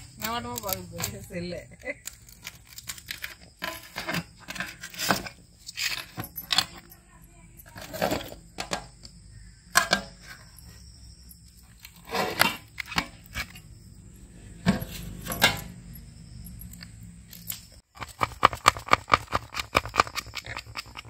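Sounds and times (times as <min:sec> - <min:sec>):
metal lid scraping and clanking: 0:02.3 - 0:06.8, 0:07.7 - 0:08.9, 0:09.7 - 0:10.6, 0:11.7 - 0:13.6, 0:14.4 - 0:15.9.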